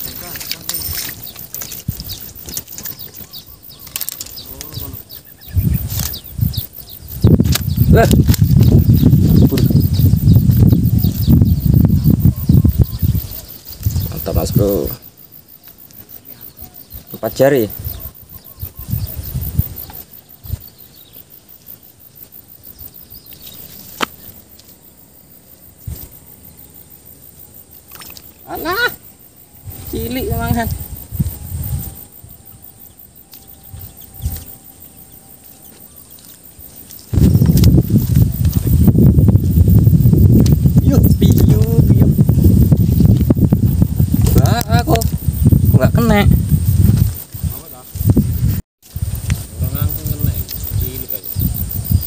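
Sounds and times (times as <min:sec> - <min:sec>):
faint bird chirps: 0:00.0 - 0:21.9, 0:25.8 - 0:38.8
fish flapping on wet mud: 0:27.9 - 0:28.4.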